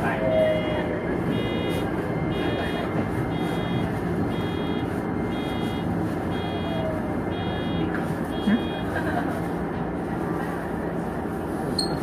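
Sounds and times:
level-crossing alarm beeping: 0.6s - 9.0s.

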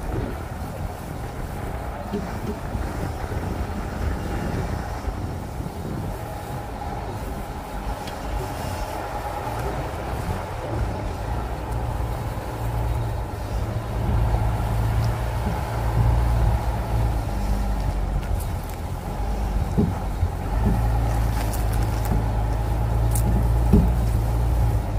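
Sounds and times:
truck rolling with low rumble: 0.0s - 24.9s
faint knock from rear of truck: 23.2s - 24.0s.

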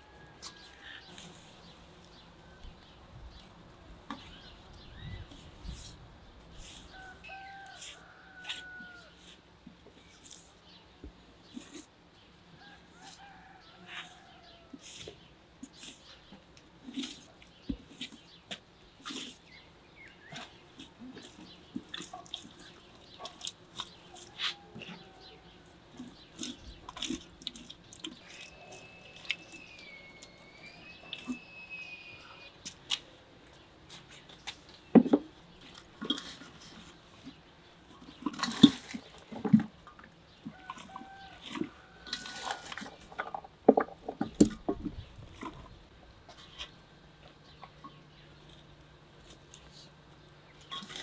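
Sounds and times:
hands squelching paste into meat: 20.2s - 31.5s.

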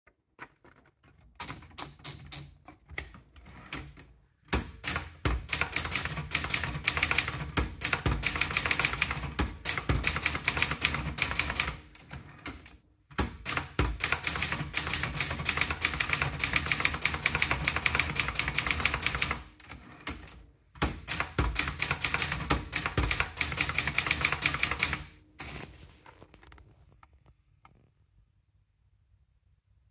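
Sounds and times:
typewriter keystrokes: 0.4s - 25.2s.

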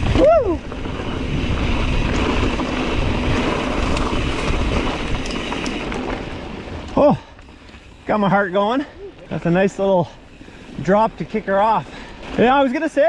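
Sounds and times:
wind buffeting microphone: 0.0s - 6.8s
tyre and trail rattle: 0.0s - 13.0s.

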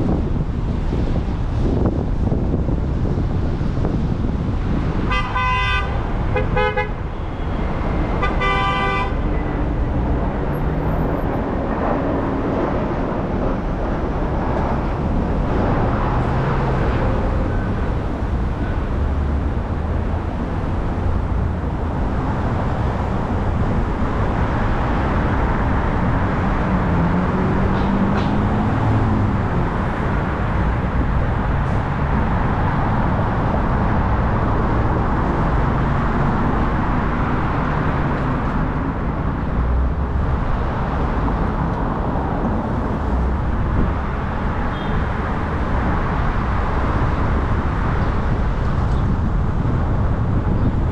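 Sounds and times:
road and traffic noise: 0.0s - 50.9s
car horn honking: 5.1s - 7.4s, 8.2s - 9.2s.

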